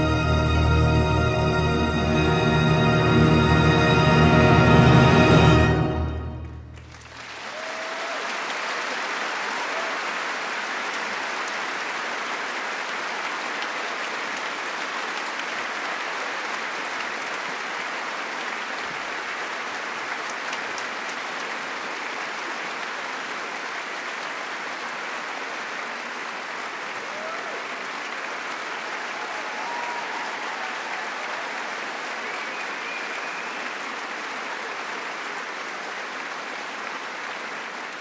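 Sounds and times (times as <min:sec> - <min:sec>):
orchestra final chord: 0:00.0 - 0:06.9
audience applauding: 0:00.0 - 0:38.0.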